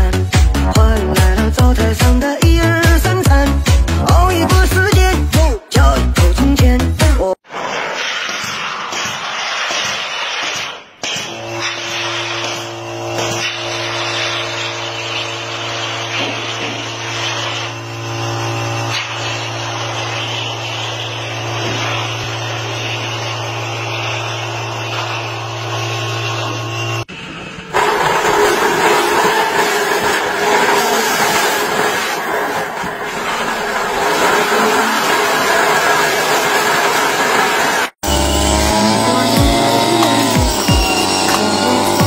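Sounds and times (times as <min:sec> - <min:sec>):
machine hum: 0:11.3 - 0:42.0.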